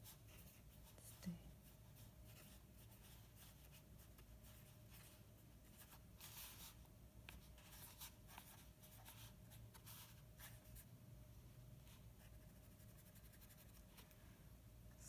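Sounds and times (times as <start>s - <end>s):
faint steady hum: 0.0s - 15.0s
brush pen scratching on paper: 11.9s - 14.0s.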